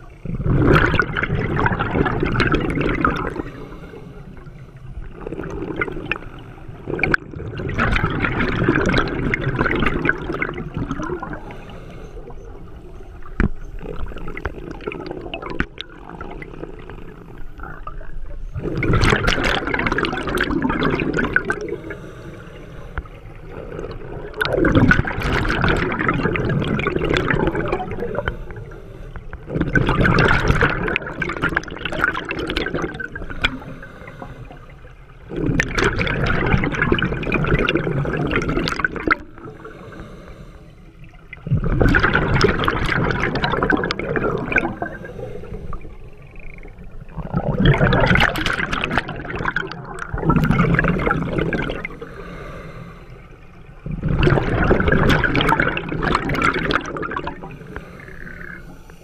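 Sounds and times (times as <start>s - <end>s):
exhaled bubbles bursting: 0.0s - 22.1s, 23.0s - 39.8s, 41.0s - 52.5s, 53.7s - 58.8s
diver breathing through regulator: 3.2s - 5.0s, 11.2s - 12.9s, 20.8s - 25.1s, 27.1s - 29.6s, 33.0s - 35.1s, 39.2s - 41.2s, 43.9s - 46.3s, 50.4s - 53.7s, 56.7s - 59.0s.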